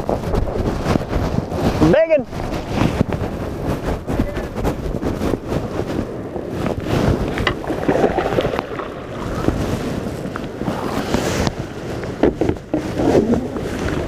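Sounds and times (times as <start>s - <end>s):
wind buffeting microphone: 0.0s - 14.0s
fish splashing in water: 7.3s - 11.5s.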